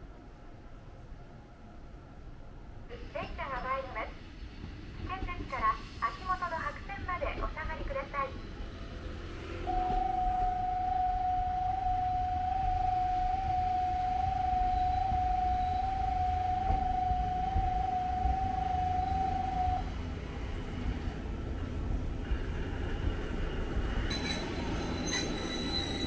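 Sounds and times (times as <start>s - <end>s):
train rumbling in: 3.4s - 26.0s
steady high warning tone: 8.0s - 21.7s.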